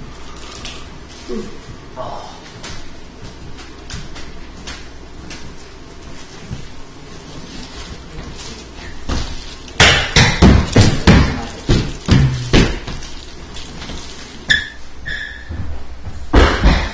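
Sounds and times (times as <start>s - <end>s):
loud knocks: 9.8s - 13.0s, 16.3s - 16.9s
short high squeak: 14.5s - 15.5s.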